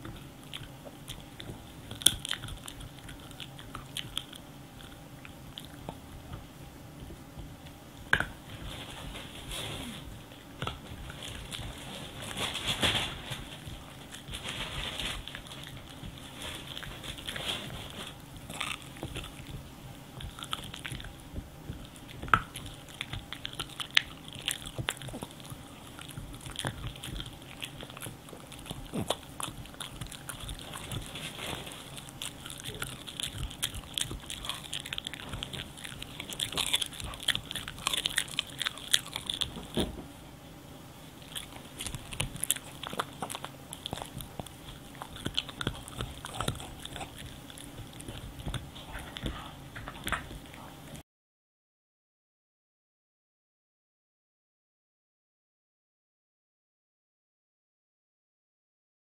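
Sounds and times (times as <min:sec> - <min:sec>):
dog crunching a chew stick: 0:00.0 - 0:06.0, 0:07.7 - 0:40.0, 0:41.2 - 0:50.7.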